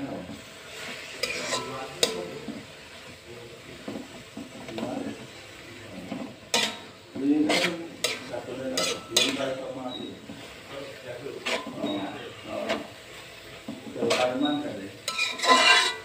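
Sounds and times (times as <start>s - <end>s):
metal spatula scraping wok: 0.4s - 3.1s, 5.1s - 16.0s
spatula clinking on pan: 1.2s - 2.3s, 6.5s - 6.9s, 7.5s - 9.6s, 14.1s - 16.0s.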